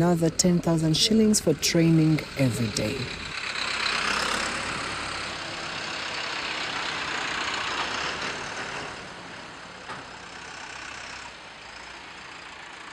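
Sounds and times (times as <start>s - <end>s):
tractor engines driving past: 0.0s - 12.9s.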